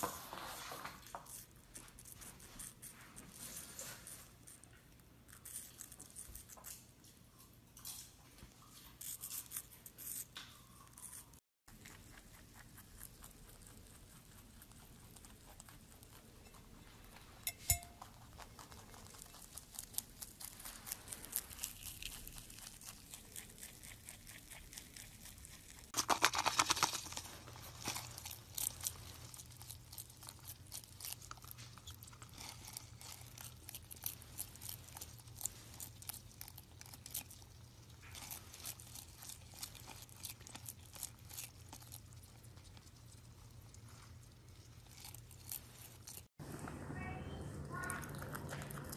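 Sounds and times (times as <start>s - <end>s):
rabbit munching leaves: 0.0s - 48.9s
lizard crunching insects: 10.9s - 46.3s
bird biting into apple: 26.0s - 37.4s.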